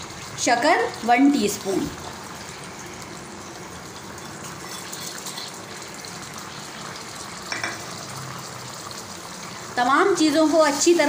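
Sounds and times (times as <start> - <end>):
sauce sizzling in oil: 0.0 - 11.0.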